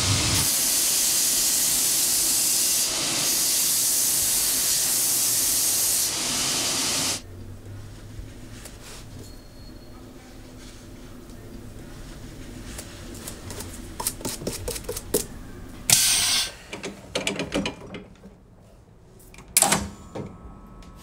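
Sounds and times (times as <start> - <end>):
brush scratching shoe sole: 13.2 - 15.2.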